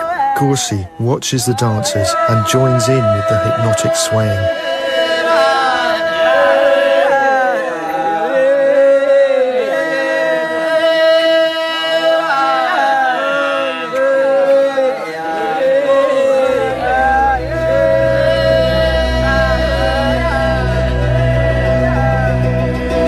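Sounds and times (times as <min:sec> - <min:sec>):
men chanting together: 0:01.6 - 0:23.0
deep low sound: 0:16.5 - 0:23.0.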